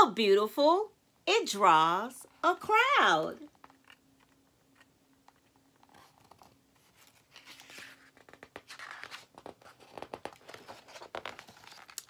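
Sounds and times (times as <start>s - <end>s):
book pages rustling: 3.6s - 12.0s.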